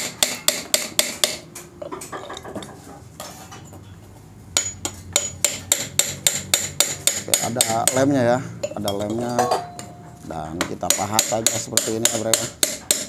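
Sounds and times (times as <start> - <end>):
hammer on chisel against metal: 0.0 - 1.7, 4.6 - 13.0.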